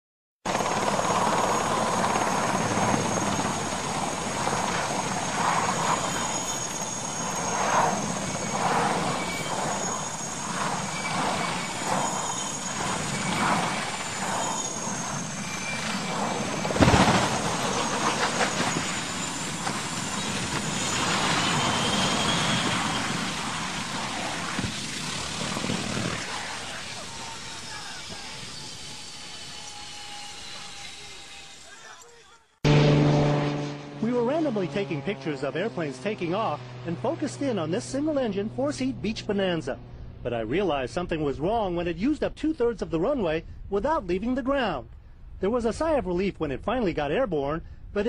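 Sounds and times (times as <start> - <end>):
helicopter turbine and rotor: 0.5 - 32.1, 32.7 - 43.7
loud crash: 15.7 - 19.8.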